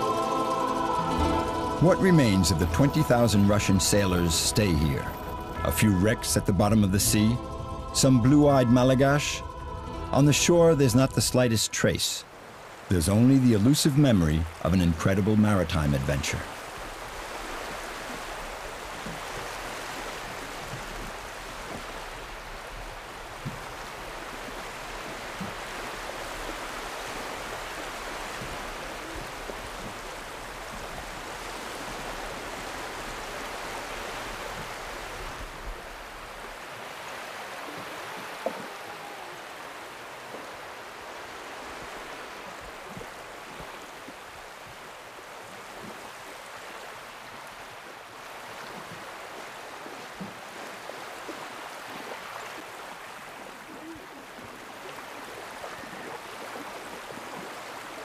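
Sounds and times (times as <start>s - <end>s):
low hum: 0.0s - 11.7s
rushing water: 0.0s - 58.0s.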